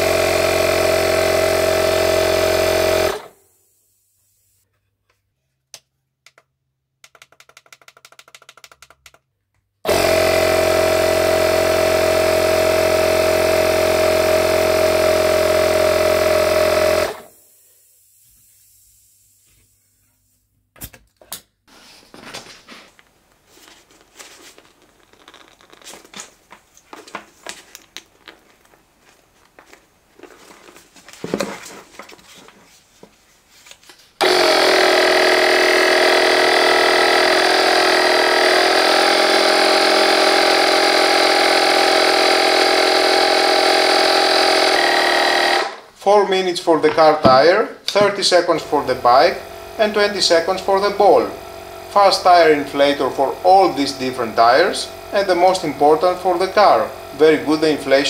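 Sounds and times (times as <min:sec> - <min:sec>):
tyre compressor running: 0:00.0 - 0:03.6, 0:09.8 - 0:19.8, 0:34.2 - 0:58.0
handling knocks: 0:46.8 - 0:48.3.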